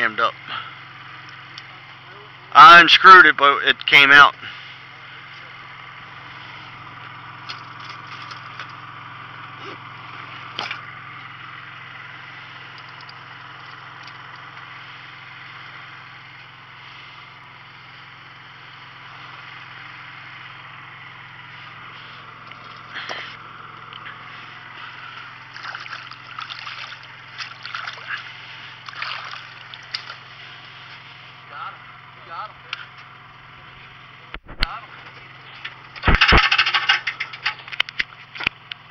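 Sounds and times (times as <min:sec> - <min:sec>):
low mechanical hum: 0:00.0 - 0:38.9
hands splashing in water: 0:25.5 - 0:30.2.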